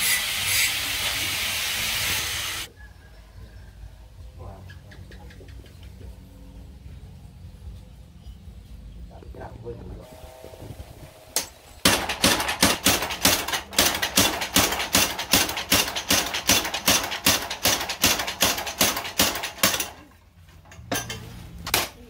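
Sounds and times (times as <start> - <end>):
power hammer striking steel: 11.4 - 20.0.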